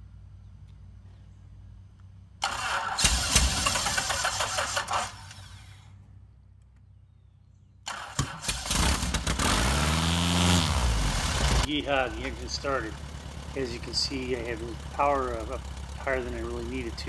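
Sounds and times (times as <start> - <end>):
starter cranking engine: 2.4 - 5.9, 7.9 - 17.0
aircraft piston engine: 2.4 - 6.0, 10.6 - 17.0.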